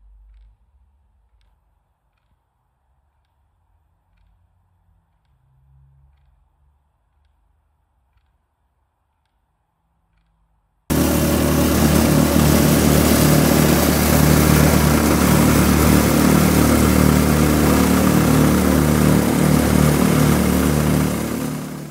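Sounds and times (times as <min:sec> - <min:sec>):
plate compactor engine running: 0:10.9 - 0:21.9.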